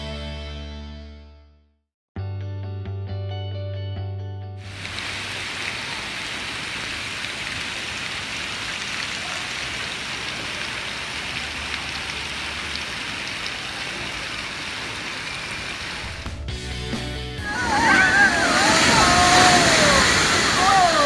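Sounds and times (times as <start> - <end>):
spraying water hiss: 4.6 - 16.3, 17.5 - 21.0
water pouring down slide: 4.6 - 16.3, 17.4 - 21.0
water pattering on pool: 4.6 - 16.4.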